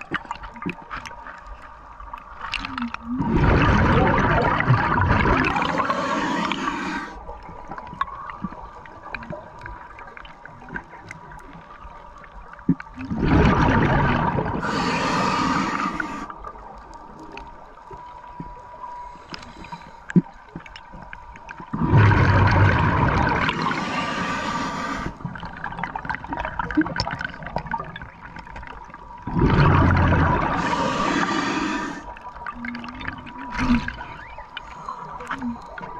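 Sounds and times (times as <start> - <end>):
underwater exhaled bubbles gurgling: 0.0 - 35.9
faint steady tone: 14.6 - 21.6, 30.3 - 35.9.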